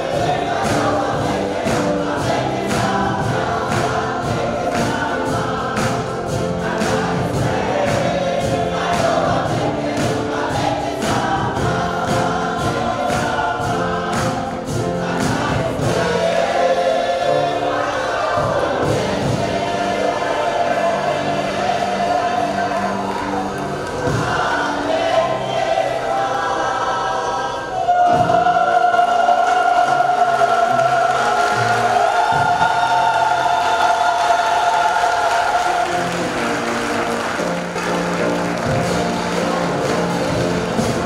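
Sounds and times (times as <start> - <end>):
handclaps on a steady beat: 0.0 - 16.5, 30.8 - 41.0
gospel choir singing: 0.0 - 41.0.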